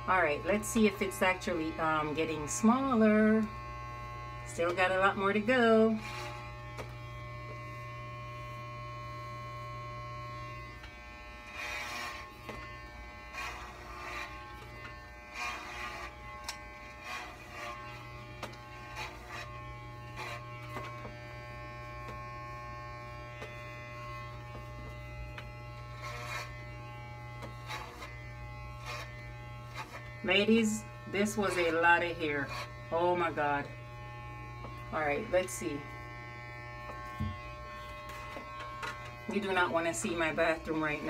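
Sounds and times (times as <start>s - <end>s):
electric hair clippers buzzing: 0.0s - 41.0s.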